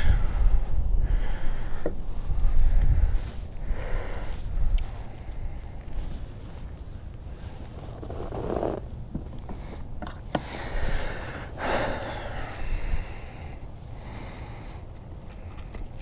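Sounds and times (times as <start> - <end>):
puffs of breath: 0.0 - 5.8, 9.6 - 15.0.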